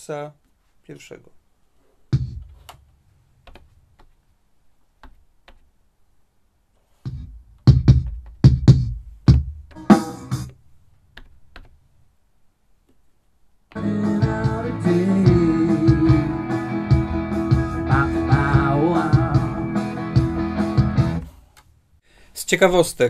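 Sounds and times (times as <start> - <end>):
kick and snare hits: 2.1 - 2.6
kick drum thump: 2.1 - 2.6, 7.1 - 9.7.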